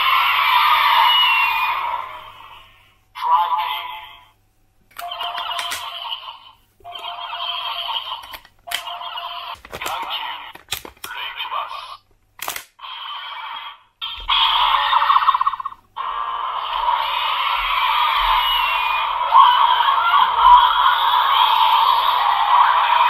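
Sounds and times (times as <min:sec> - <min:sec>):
toy voice callouts: 0:03.2 - 0:04.3, 0:09.8 - 0:12.0
toy electronic sound effects: 0:05.0 - 0:12.0, 0:12.8 - 0:23.0
sharp plastic clicks: 0:09.6 - 0:11.3, 0:12.0 - 0:12.8.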